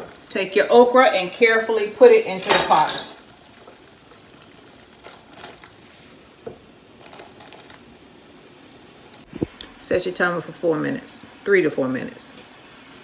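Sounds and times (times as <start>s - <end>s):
pot of water boiling: 0.0s - 13.0s.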